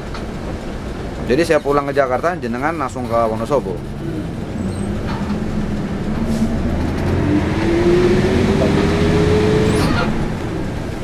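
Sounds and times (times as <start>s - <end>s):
bus engine running: 0.0s - 11.0s
tyres on wet road: 0.0s - 11.0s
engine whine rising: 3.9s - 11.0s.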